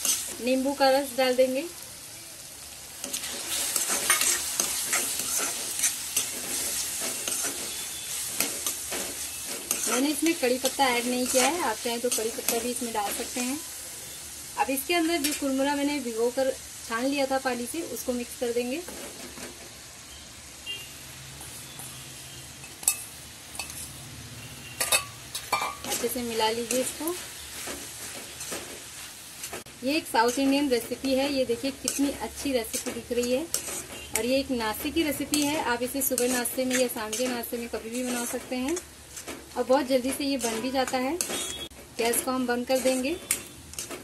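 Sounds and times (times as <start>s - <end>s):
spoon scraping metal pan: 0.0s - 0.5s, 3.0s - 13.4s, 24.8s - 44.0s
food sizzling in oil: 0.0s - 44.0s
steel utensil clinking on pan: 24.8s - 26.0s.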